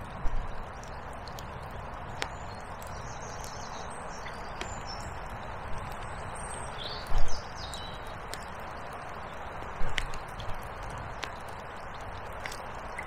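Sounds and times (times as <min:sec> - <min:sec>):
small birds chirping: 0:02.1 - 0:10.2.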